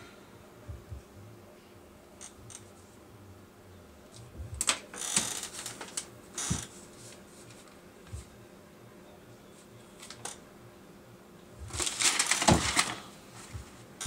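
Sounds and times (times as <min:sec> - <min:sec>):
paper rustling and shuffling: 0:04.2 - 0:08.4, 0:09.6 - 0:10.4, 0:11.6 - 0:13.9.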